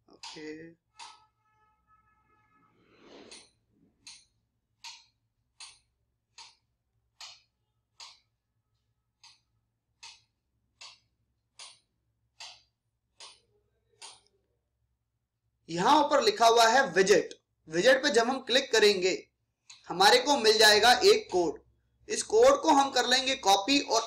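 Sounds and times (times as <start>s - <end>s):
faint regular ticks: 3.3s - 14.4s.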